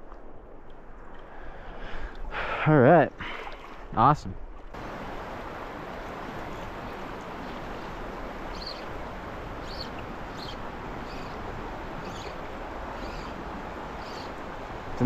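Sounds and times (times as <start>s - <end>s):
river rushing over shallows: 4.7s - 15.0s
bird chirping: 6.5s - 9.0s, 9.6s - 11.4s, 12.0s - 13.4s, 14.0s - 14.4s.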